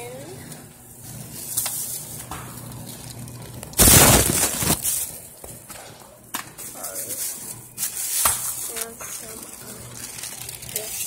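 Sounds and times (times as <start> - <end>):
loud rustling: 3.8 - 5.1.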